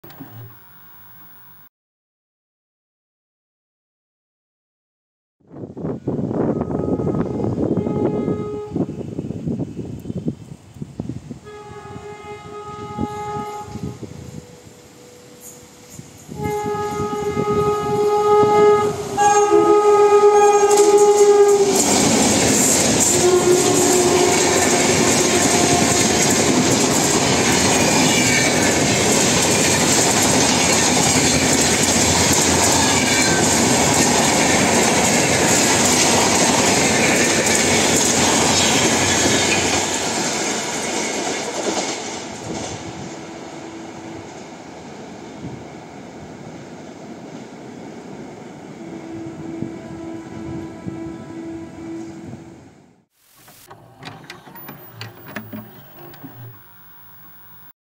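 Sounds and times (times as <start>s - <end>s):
train horn blasts: 6.2s - 9.2s, 11.4s - 28.8s, 42.7s - 44.6s, 48.8s - 52.7s
train wheels clattering on rails: 20.6s - 43.2s.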